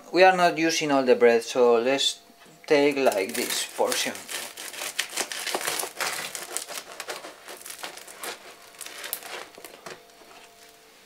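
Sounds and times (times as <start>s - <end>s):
knife sawing through crusty bread: 3.2s - 9.6s.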